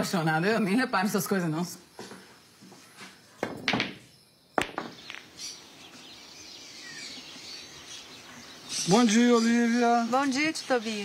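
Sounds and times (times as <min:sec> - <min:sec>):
small birds chirping: 0:04.0 - 0:11.0
sharp knock: 0:04.6 - 0:05.2.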